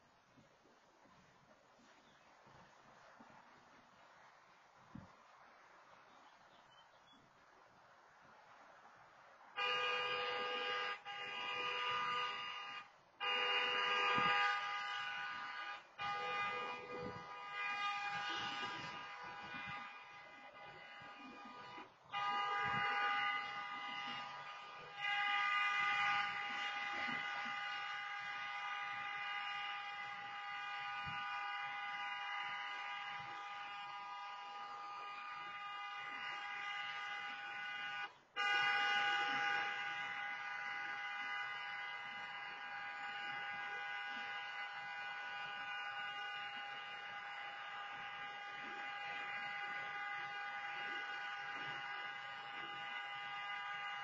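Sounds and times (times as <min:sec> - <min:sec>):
car horn long blasts: 0:09.5 - 0:54.0.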